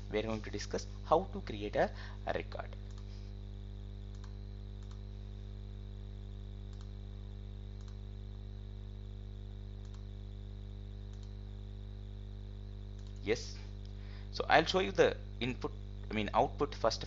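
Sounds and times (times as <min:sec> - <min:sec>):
electrical hum: 0:00.0 - 0:17.0
computer mouse clicks: 0:02.8 - 0:03.1, 0:04.1 - 0:05.0, 0:06.7 - 0:07.0, 0:07.8 - 0:08.0, 0:09.8 - 0:10.1, 0:11.1 - 0:11.4, 0:12.9 - 0:13.2.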